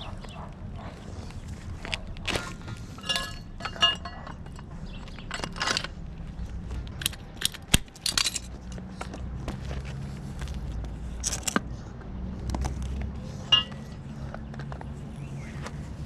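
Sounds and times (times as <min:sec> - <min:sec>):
metal tools clinking and knocking: 0:02.3 - 0:06.2, 0:06.8 - 0:09.0, 0:13.4 - 0:14.7.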